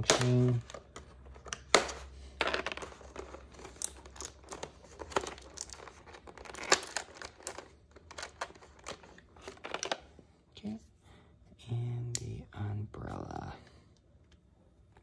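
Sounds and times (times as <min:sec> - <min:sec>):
plastic packaging crinkling: 0:02.6 - 0:10.0.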